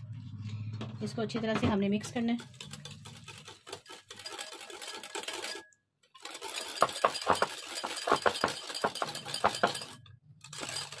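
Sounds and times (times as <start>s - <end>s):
spoon stirring in a bowl: 2.4s - 5.7s.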